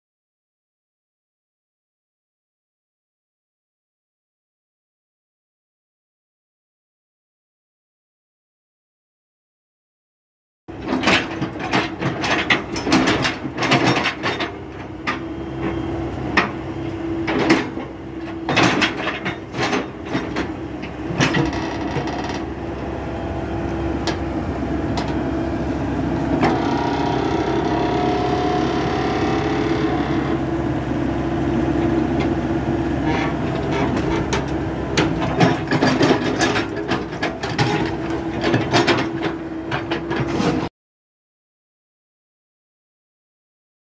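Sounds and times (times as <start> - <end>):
diesel engine running: 10.7 - 40.3
metallic knocks and clanks: 18.5 - 22.5.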